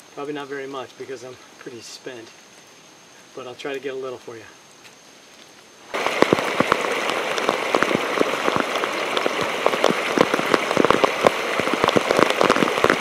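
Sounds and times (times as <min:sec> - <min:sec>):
heavy rain: 0:05.9 - 0:13.0.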